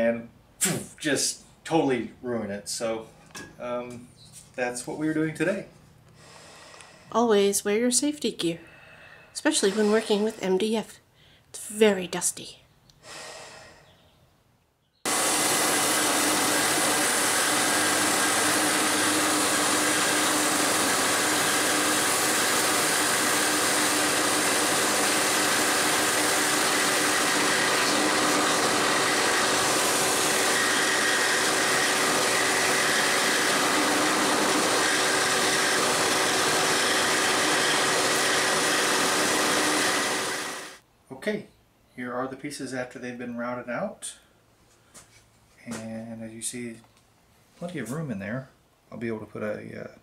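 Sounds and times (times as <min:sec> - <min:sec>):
drill press router whirring: 0:09.5 - 0:10.5, 0:15.1 - 0:40.8.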